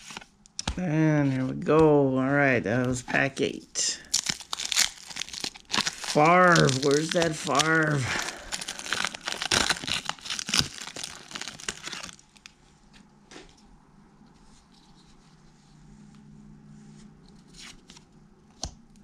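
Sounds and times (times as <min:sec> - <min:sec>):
foil wrapper tearing and crinkling: 0:04.0 - 0:12.6.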